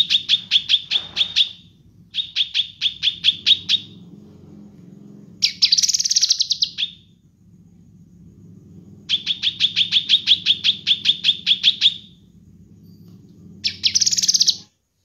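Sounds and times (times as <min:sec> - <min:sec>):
bird trill: 0:00.0 - 0:04.0, 0:05.4 - 0:07.1, 0:09.1 - 0:12.2, 0:13.6 - 0:14.7
bird chirping: 0:00.0 - 0:14.7
low steady hum: 0:00.0 - 0:15.0.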